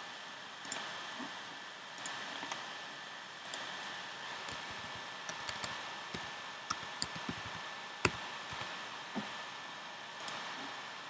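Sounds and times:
computer mouse clicking: 0:00.6 - 0:00.9, 0:02.0 - 0:02.6, 0:03.4 - 0:03.7, 0:04.4 - 0:08.8, 0:10.2 - 0:10.5.

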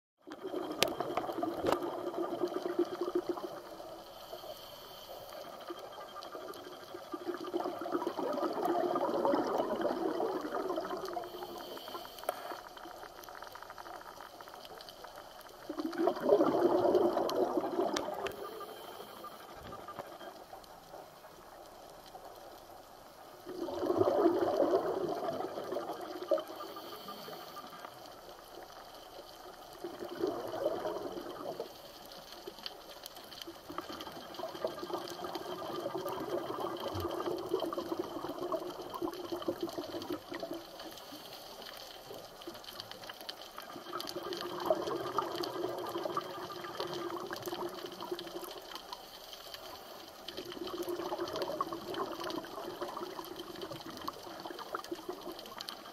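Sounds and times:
water bubbling and rushing: 0:06.4 - 0:11.4, 0:15.7 - 0:18.5, 0:23.4 - 0:26.9, 0:29.8 - 0:31.8.

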